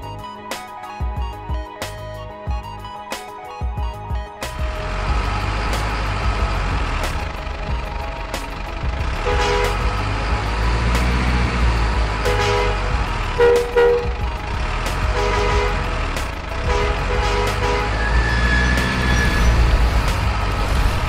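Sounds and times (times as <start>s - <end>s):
diesel truck engine running: 3.8s - 21.0s
two-note horn toots: 9.2s - 10.0s, 12.2s - 14.2s, 15.1s - 15.9s, 16.6s - 19.7s.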